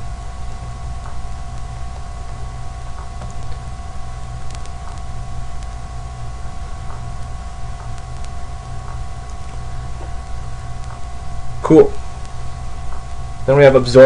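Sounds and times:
background hum and hiss: 0.0s - 14.0s
constant whining tones: 0.0s - 14.0s
faint clicks: 4.4s - 5.8s, 6.8s - 9.6s.

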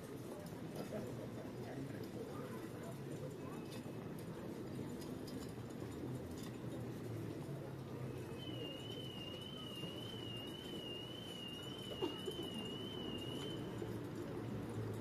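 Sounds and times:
street crowd murmur: 0.0s - 15.0s.

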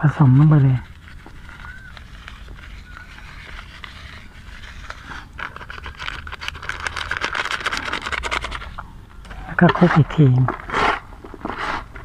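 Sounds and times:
plastic bag rustling: 0.4s - 8.8s.

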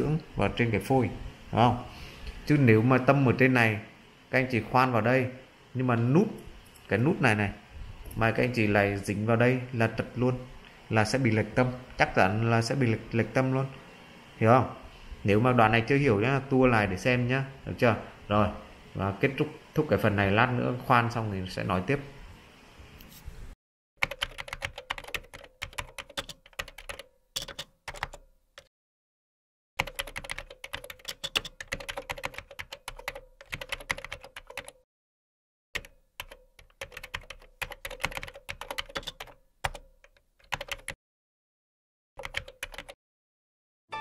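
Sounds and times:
keyboard typing clicks: 24.0s - 28.7s, 29.8s - 34.8s, 35.8s - 41.0s, 42.2s - 43.0s.

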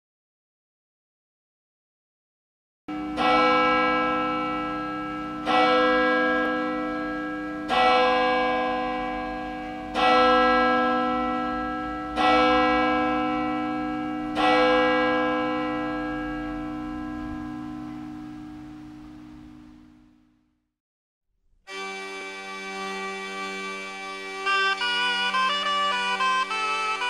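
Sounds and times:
large church bell tolling: 2.9s - 20.2s.

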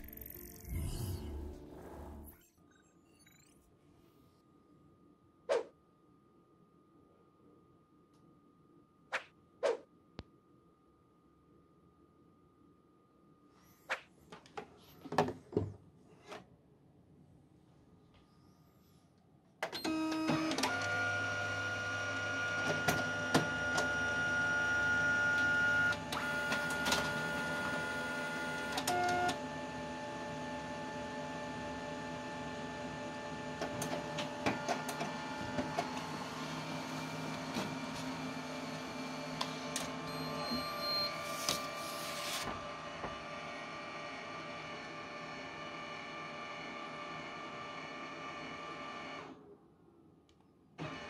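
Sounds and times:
low hum: 0.0s - 3.3s
copier motor whining: 19.8s - 49.3s
copier clicks and clunks: 33.6s - 38.2s.

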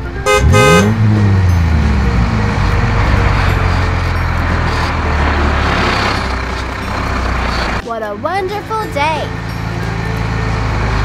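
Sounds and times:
cartoon horn tooting: 0.2s - 1.3s.

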